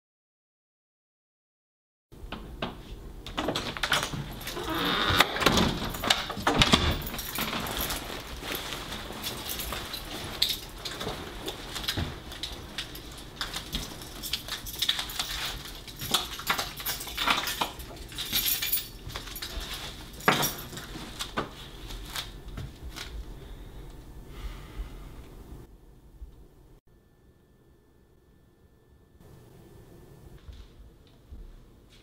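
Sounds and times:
keys jangling: 5.4 - 8.4, 9.1 - 21.0
leather jacket rustling: 6.9 - 14.3.

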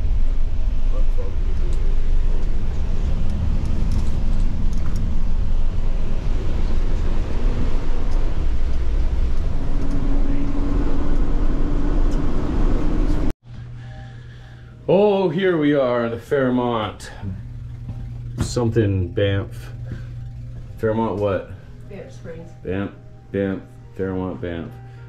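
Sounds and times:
bus engine and road rumble: 0.0 - 13.3
steady hum: 0.0 - 25.0.

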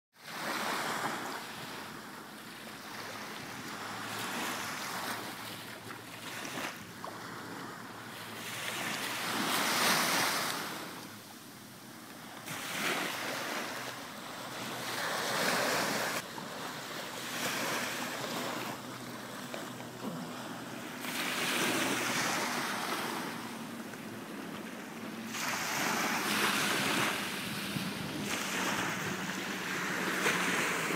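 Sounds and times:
distant motorboat drone: 0.2 - 30.9
waves breaking on beach: 0.2 - 30.9
wind buffeting microphone: 25.6 - 30.9.

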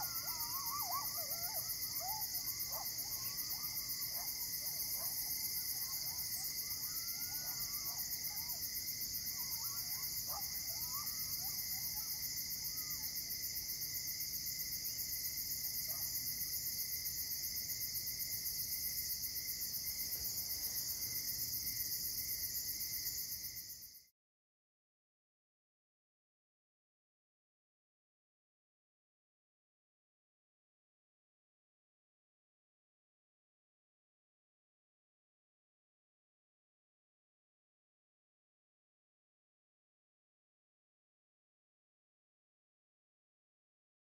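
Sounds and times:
distant animal calls: 0.0 - 4.3
crickets and insects trilling: 0.0 - 24.0.

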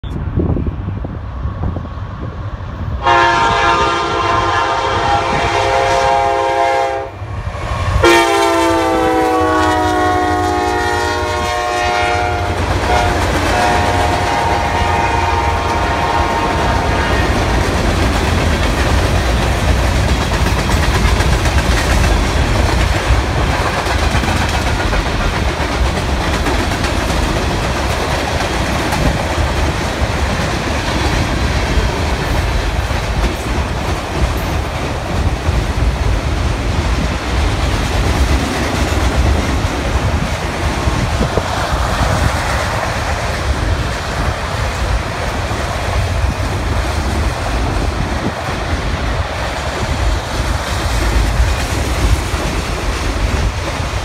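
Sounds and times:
locomotive air horn: 3.0 - 7.2, 8.0 - 17.3
wheels clicking on rails: 16.7 - 54.0.

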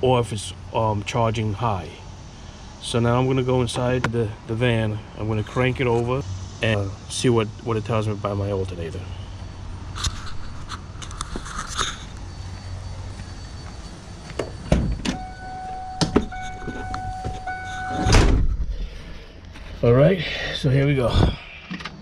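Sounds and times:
footsteps: 10.0 - 15.0
electronic warning chime: 11.9 - 18.2
car door slamming shut: 14.7 - 18.7.

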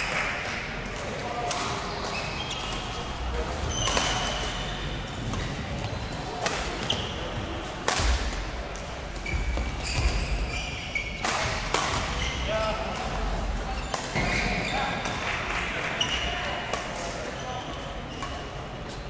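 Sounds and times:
murmur of voices: 0.0 - 9.3, 10.4 - 19.0
shoe squeaks: 1.8 - 3.1, 3.7 - 7.4, 9.2 - 13.0, 13.7 - 15.0, 17.3 - 18.5
racket striking shuttlecock: 7.8 - 8.4.

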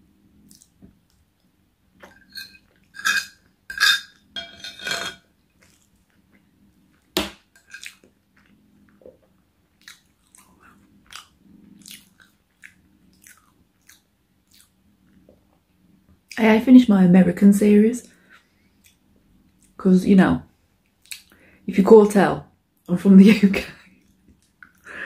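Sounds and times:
person chewing food: 0.4 - 1.2, 5.5 - 15.5
fork clinking on plate: 2.0 - 5.2.

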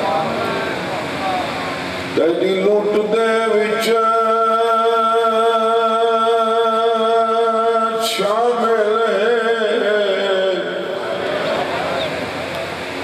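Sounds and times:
man chanting into a microphone: 2.2 - 11.0.

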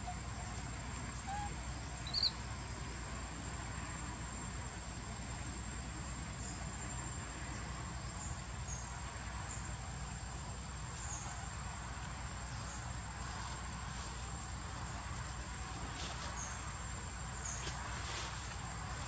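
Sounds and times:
high-pitched insect trill: 0.0 - 2.8.

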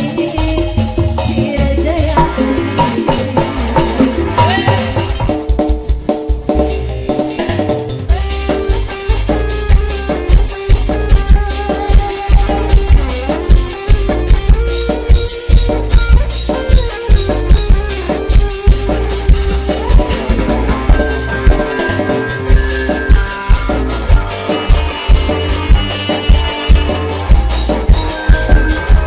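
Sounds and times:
band playing instrumental: 0.0 - 29.0
bamboo flute melody: 8.1 - 29.0.

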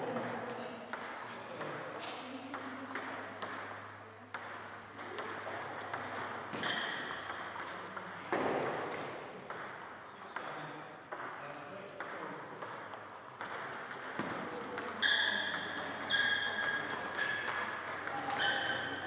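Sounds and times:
murmur of voices: 0.0 - 6.6
table tennis ball clicking: 2.5 - 10.5.

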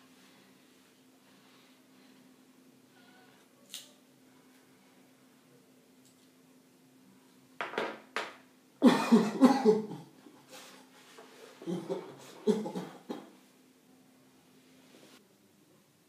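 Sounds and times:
man coughing: 8.8 - 10.1, 11.6 - 13.3.

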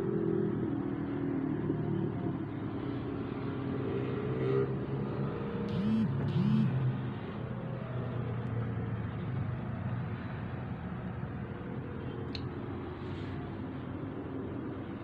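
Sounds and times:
traffic hum through window: 0.0 - 15.0
short rising and falling sounds: 5.7 - 7.0.

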